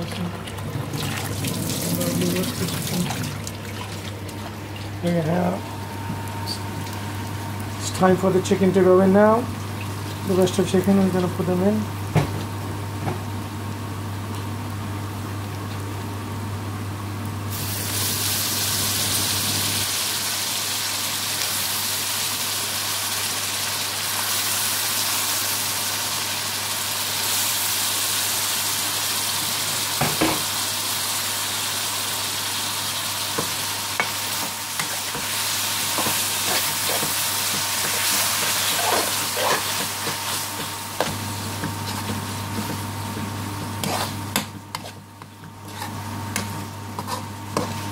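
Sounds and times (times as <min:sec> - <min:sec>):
chicken sizzling in oil: 0:17.4 - 0:44.4
metal spoon scraping pan: 0:43.8 - 0:45.0.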